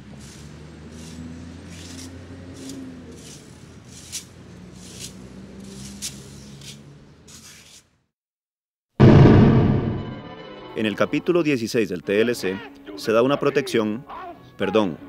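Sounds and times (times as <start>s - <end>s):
broom sweeping over pavement: 0.0s - 7.9s.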